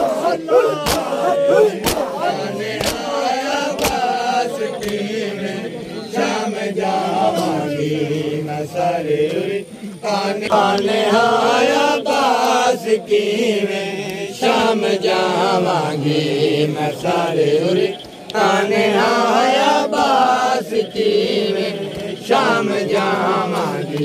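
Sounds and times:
crowd of men chanting: 0.0 - 24.0
hands slapping chests: 0.8 - 5.1, 21.9 - 22.2, 22.9 - 24.0.

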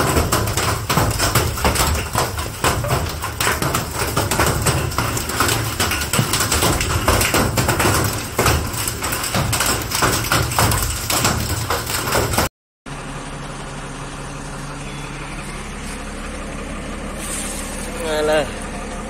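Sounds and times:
hailstones pelting the ground: 0.0 - 12.5.

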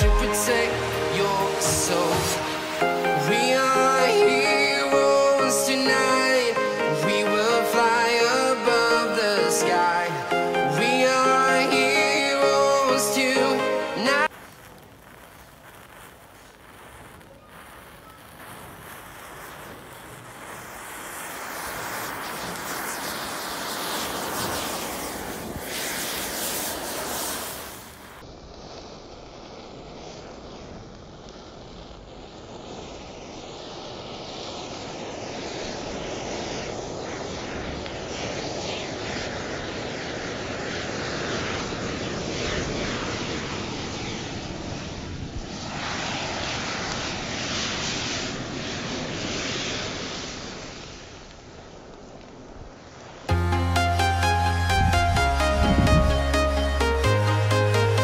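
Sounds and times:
match heads igniting with crackling hiss: 14.0 - 41.1.

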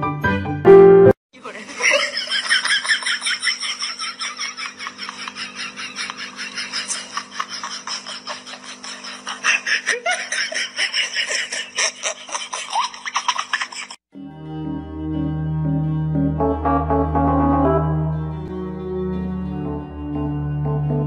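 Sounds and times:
person giggling: 1.5 - 14.0.

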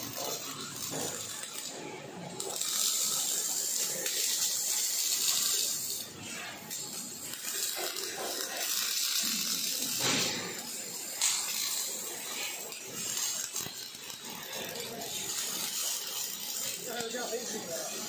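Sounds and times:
welding arc crackling hiss: 0.0 - 18.0.

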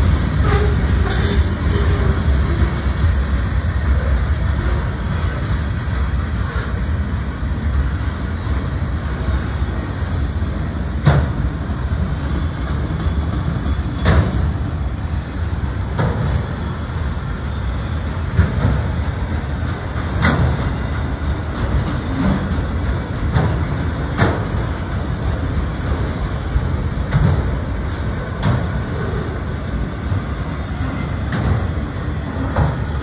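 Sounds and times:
freight train rumbling: 0.0 - 33.0
wheel clacks on track: 10.1 - 14.7, 18.0 - 30.3, 31.1 - 33.0.

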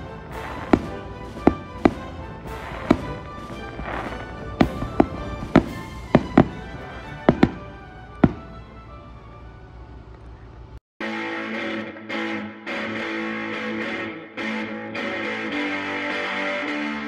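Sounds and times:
fireworks bursting with sharp bangs: 0.0 - 8.7.

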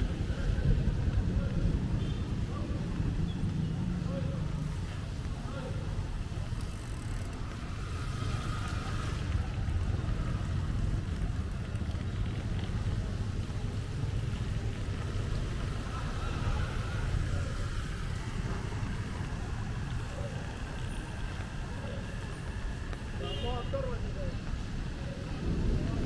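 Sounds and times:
traffic rumble: 0.0 - 26.0
tyres hissing on wet road: 7.4 - 26.0.

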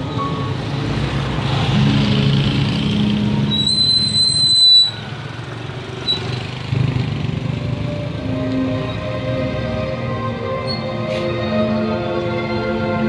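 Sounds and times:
vehicle engines running: 0.0 - 13.0
high thin squeal: 3.4 - 5.1, 6.0 - 6.4.

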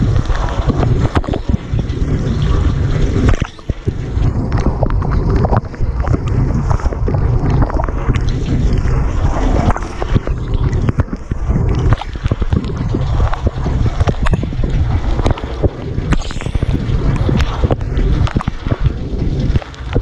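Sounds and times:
water jets spattering: 0.0 - 20.0.

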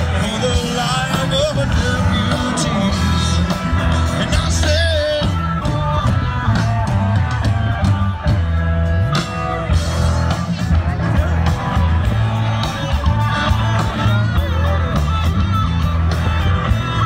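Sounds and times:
person singing: 0.0 - 8.4
bass line: 0.0 - 17.0
live rock band playing: 0.0 - 17.0.

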